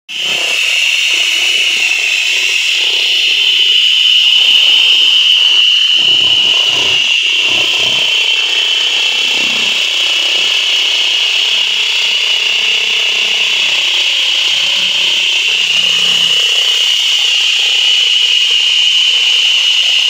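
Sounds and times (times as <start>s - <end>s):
high-pitched laser whine: 0.1s - 20.0s.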